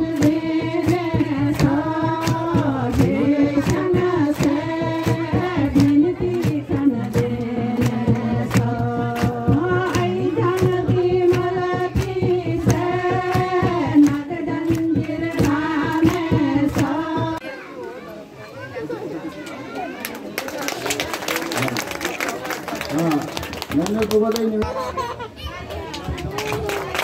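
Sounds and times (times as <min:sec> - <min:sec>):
steady percussive beat: 0:00.0 - 0:17.4
voices singing melody: 0:00.0 - 0:17.4.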